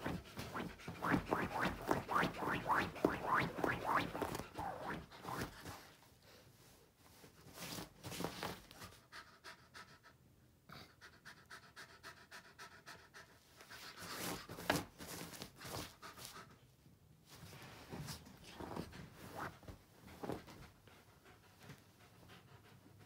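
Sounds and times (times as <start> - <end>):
dog panting: 8.8 - 14.3, 18.8 - 23.0.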